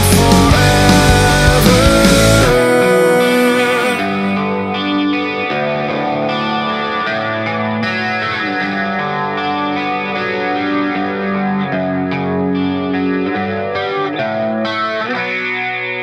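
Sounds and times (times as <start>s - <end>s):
distorted electric guitar chords: 0.0s - 16.0s.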